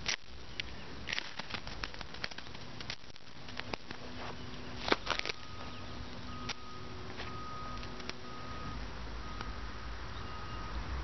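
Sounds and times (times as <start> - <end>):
tinder crackling and popping: 0.0 - 8.4.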